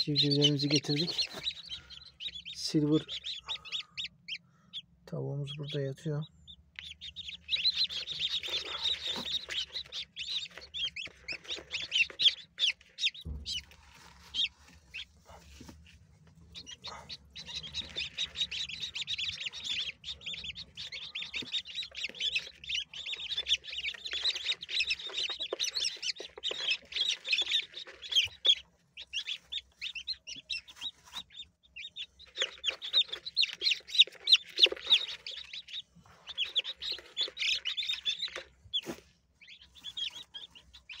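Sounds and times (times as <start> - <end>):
chicks peeping: 0.0 - 41.0.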